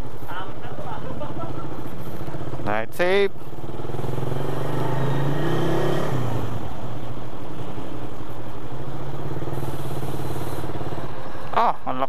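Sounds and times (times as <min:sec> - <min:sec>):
brief hiss: 0:09.5 - 0:10.8.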